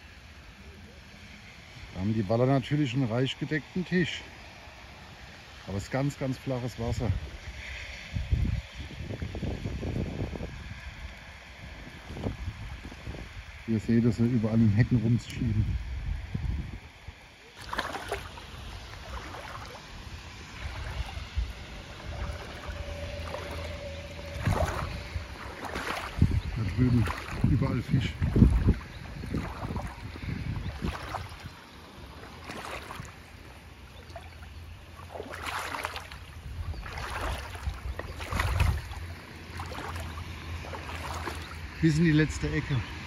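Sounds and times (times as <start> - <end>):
low hum: 14.7 - 43.0
boat rustling and sloshing through brush: 17.4 - 43.0
water rushing: 17.4 - 43.0
low rumble: 18.3 - 35.2.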